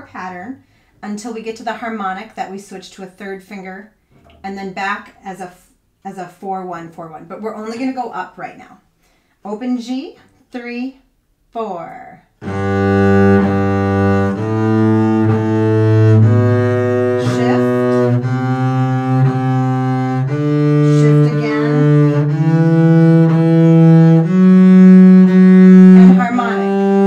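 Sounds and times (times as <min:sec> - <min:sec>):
bowed double bass scale: 0:12.4 - 0:27.0.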